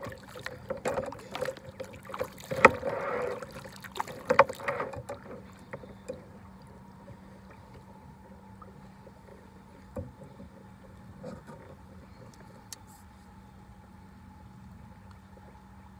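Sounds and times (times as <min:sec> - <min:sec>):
paddle knocks: 0:00.0 - 0:06.3
kayak paddle splashing water: 0:00.0 - 0:07.8
faint steady hum: 0:00.0 - 0:15.9.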